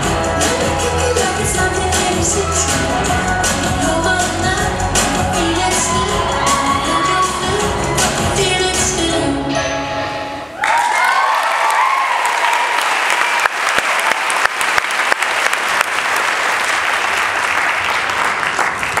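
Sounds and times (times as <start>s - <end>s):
cheering and whoops: 5.4s - 8.4s, 10.6s - 14.1s
audience clapping: 10.6s - 19.0s.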